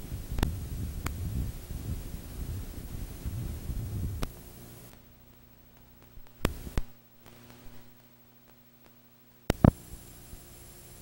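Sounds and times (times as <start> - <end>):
faint hiss: 0.0 - 11.0
low electrical hum: 0.0 - 11.0
sharp clicks: 4.2 - 10.0.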